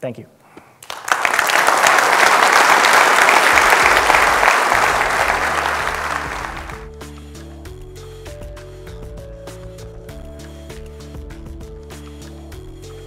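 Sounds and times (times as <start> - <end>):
audience applauding: 0.8 - 6.9
music with steady bass: 3.5 - 13.0.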